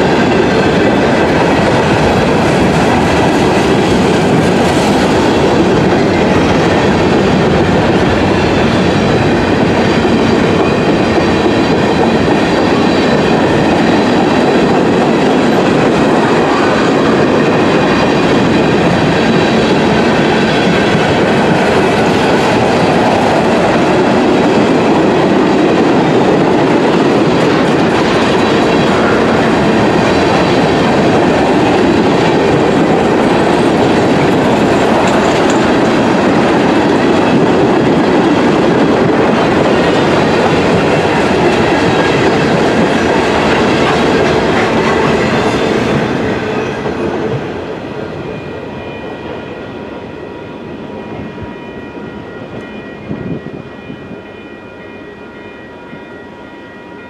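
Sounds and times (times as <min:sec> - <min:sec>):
freight train rumbling past: 0:00.0 - 0:57.0
wheels clattering over rails: 0:19.8 - 0:45.6.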